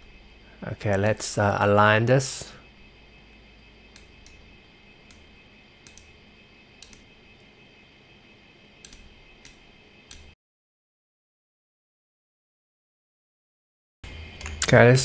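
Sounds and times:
computer mouse clicks: 3.9s - 4.4s, 5.1s - 6.1s, 6.8s - 7.1s, 8.8s - 10.4s.

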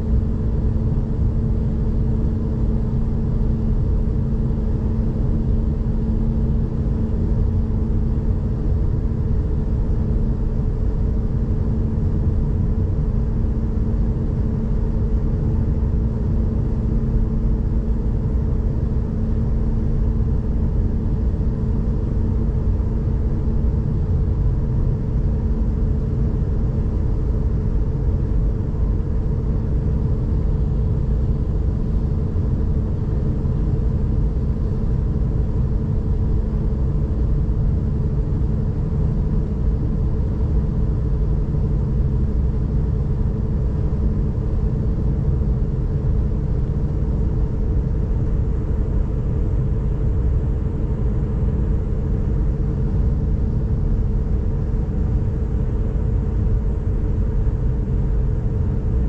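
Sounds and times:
constant hum: 0.0s - 59.0s.

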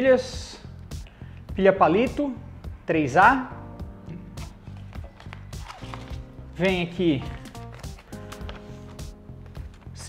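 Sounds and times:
music with held chords: 3.6s - 10.0s.

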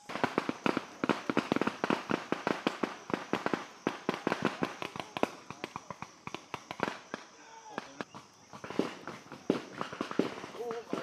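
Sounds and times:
rifle fire: 8.6s - 11.0s.

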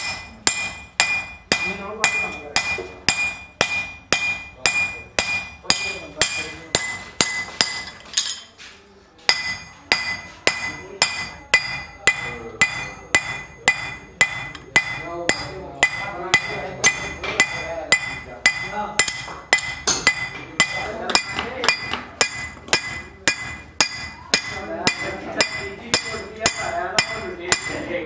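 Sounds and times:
hammer ringing on metal anvil: 0.0s - 8.4s, 9.3s - 28.0s.

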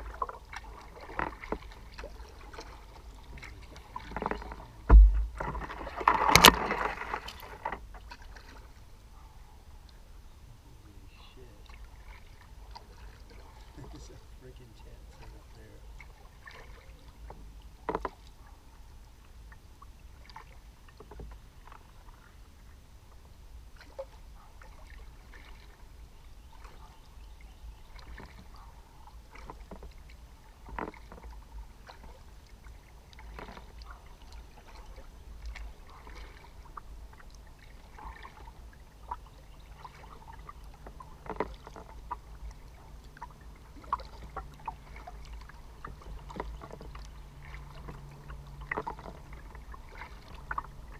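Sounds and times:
paddle splashes and drips: 0.0s - 50.9s
steady low rumble: 4.7s - 5.6s.

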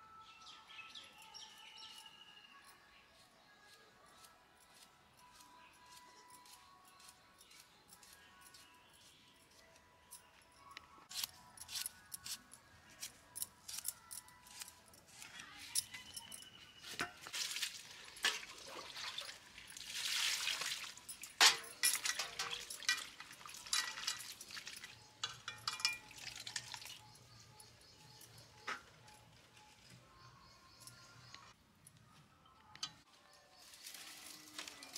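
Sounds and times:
water splashing: 17.3s - 21.1s
water pouring: 17.3s - 25.0s, 25.8s - 27.0s, 33.8s - 34.9s
clinks against steel bowl: 21.1s - 27.0s.

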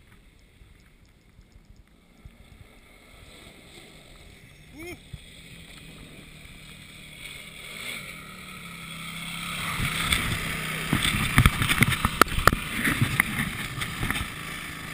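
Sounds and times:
quad bike engine: 0.0s - 14.9s
sharp cracks and knocks: 9.8s - 14.4s.

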